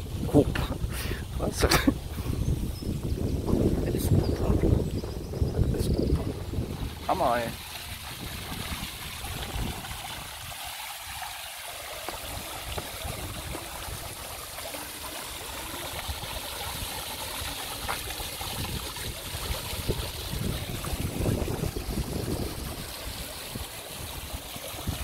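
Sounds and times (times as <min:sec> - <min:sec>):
fountain water splashing: 0:05.9 - 0:25.0.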